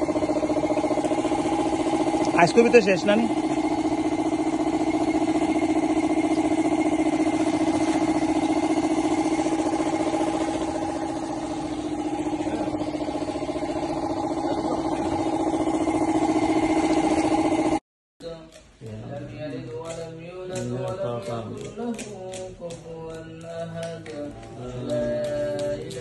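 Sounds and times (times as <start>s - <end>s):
small pump engine running: 0.0s - 17.8s, 23.4s - 26.0s.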